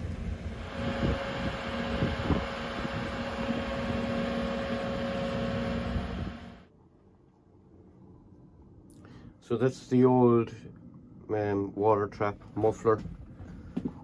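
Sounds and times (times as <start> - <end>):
machine hum: 0.0 - 6.7.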